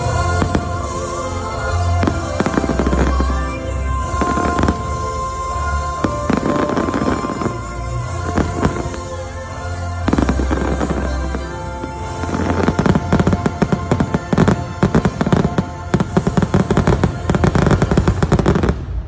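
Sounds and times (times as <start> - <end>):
show music: 0.0 - 19.0
fireworks popping and banging: 5.9 - 9.2, 10.0 - 19.0.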